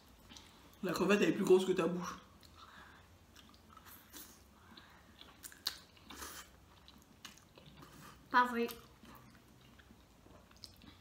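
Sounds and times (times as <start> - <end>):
chewing mouth clicks and smacks: 3.3 - 8.0, 8.7 - 11.0.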